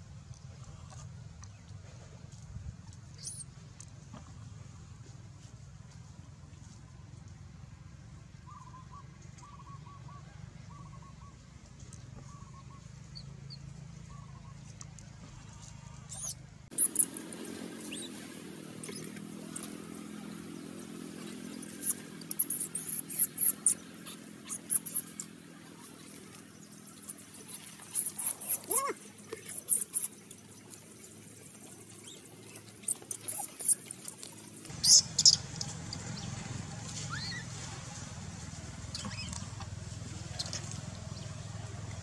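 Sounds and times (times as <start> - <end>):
baby monkey squealing: 3.2 - 3.4, 16.1 - 17.2, 17.8 - 18.2, 18.8 - 19.8, 21.6 - 25.3, 27.0 - 30.1, 32.8 - 34.2, 34.8 - 35.4, 37.1 - 37.4, 38.9 - 39.4.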